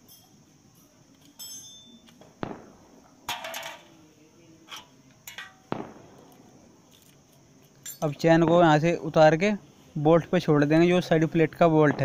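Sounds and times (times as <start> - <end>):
metal tool clinking on chain: 0.0 - 2.2, 6.9 - 8.3.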